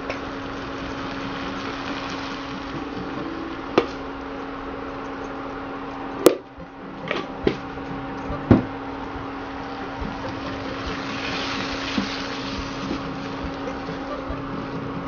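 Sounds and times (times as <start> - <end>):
food hissing in hot pan: 0.0 - 4.1, 9.8 - 15.0
induction cooktop humming: 0.0 - 15.0
spatula scraping pan: 10.0 - 15.0.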